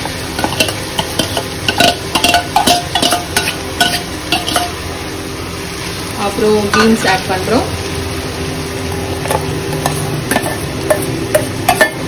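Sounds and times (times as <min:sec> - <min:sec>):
food sizzling in a pot: 0:00.0 - 0:12.0
metal spoon clinking on pot: 0:00.4 - 0:04.8, 0:09.3 - 0:12.0.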